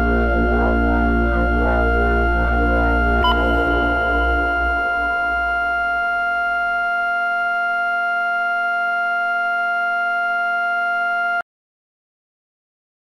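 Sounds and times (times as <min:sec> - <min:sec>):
low rumble: 0:00.0 - 0:07.1
electronic drone chord: 0:00.0 - 0:08.2.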